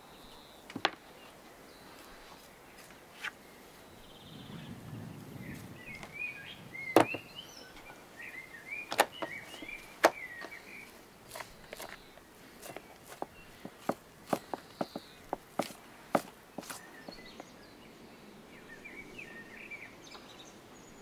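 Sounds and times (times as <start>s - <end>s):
birds chirping: 0.0s - 21.0s
knife knocking on wooden board: 7.0s - 7.2s.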